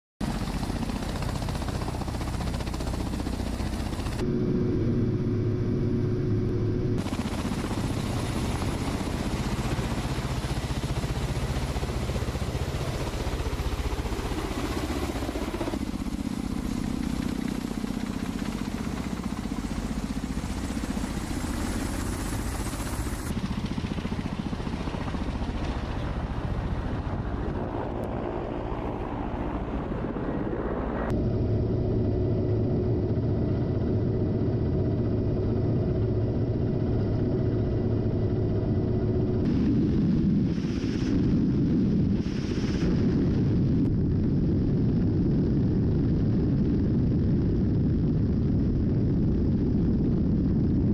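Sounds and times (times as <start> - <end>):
helicopter rotor and engine noise: 0.2 - 50.9
steady hum: 0.3 - 23.4.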